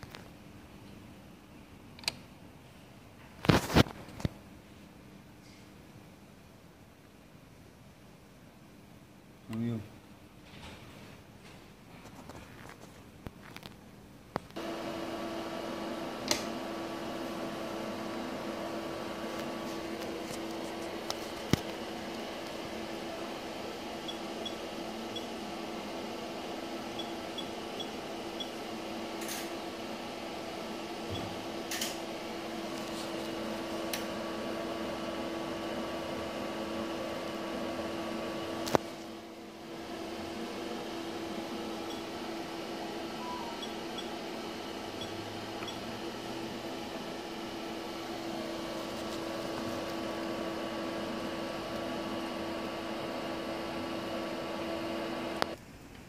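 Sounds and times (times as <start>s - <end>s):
steady machine hum: 14.6s - 55.6s.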